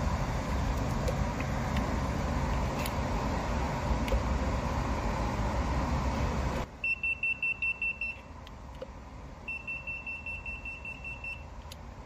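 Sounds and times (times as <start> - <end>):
voltage tester pen beeping: 9.5 - 11.5.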